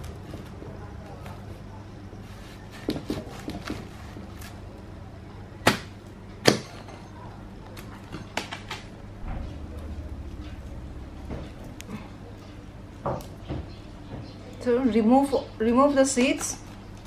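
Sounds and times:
steady low hum: 0.0s - 17.0s
cleaver chopping on wooden block: 5.6s - 6.7s.

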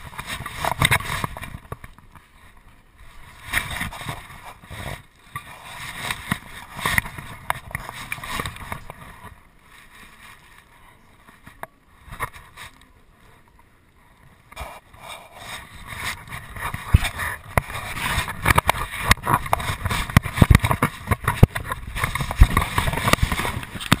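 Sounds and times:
camera rubbing and knocking on dog: 3.4s - 9.1s, 14.5s - 24.0s.

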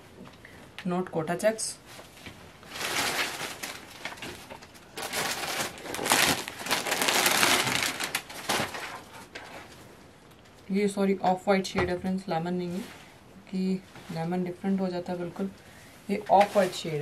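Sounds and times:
cloth rustling: 1.9s - 9.8s
plastic package crinkling: 2.6s - 9.2s.

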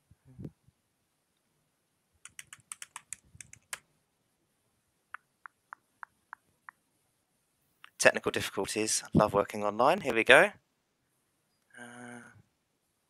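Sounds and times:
faint keyboard typing: 2.2s - 3.9s.

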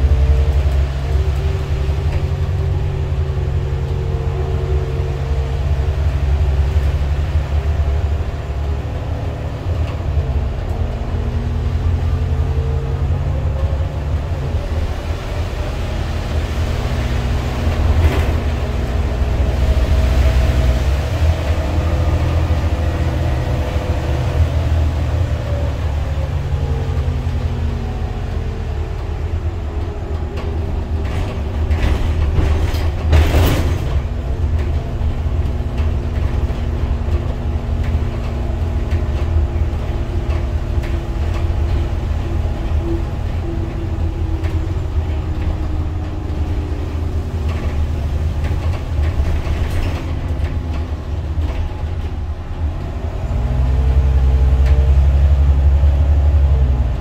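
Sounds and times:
bus diesel engine drone: 0.0s - 57.0s
road and body noise: 0.0s - 57.0s.

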